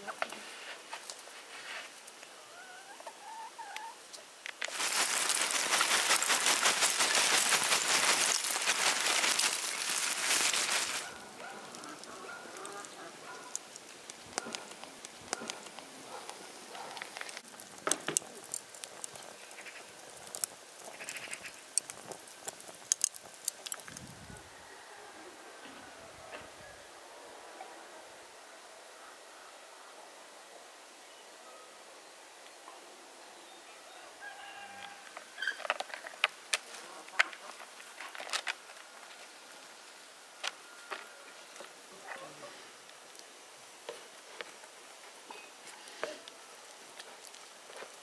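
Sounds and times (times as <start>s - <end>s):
hen clucking: 2.5s - 4.0s, 5.1s - 13.6s
charcoal lumps clinking: 4.5s - 24.0s
loud dense rustling crackle: 4.6s - 24.2s, 35.5s - 40.6s, 44.0s - 48.0s
birds chirping: 4.7s - 17.4s.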